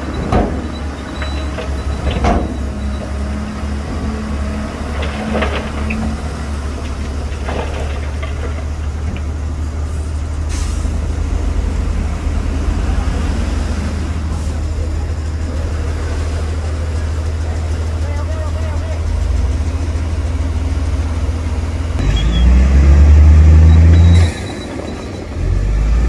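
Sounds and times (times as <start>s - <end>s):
diesel truck engine running: 0.0s - 26.0s
rocks tumbling and rattling: 4.0s - 10.3s.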